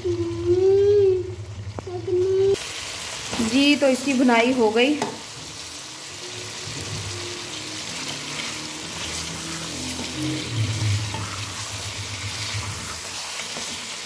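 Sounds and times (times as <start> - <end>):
food sizzling in hot oil: 0.0 - 14.0
spatula scraping pan: 6.6 - 14.0.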